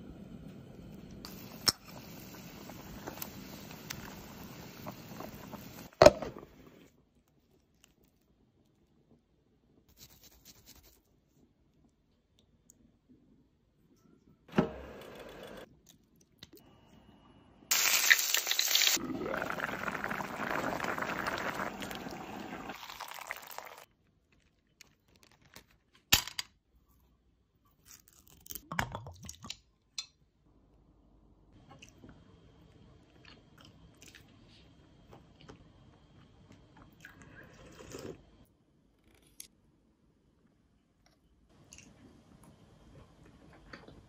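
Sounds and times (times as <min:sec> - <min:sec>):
broth boiling hard: 0:01.3 - 0:06.8, 0:17.7 - 0:23.9.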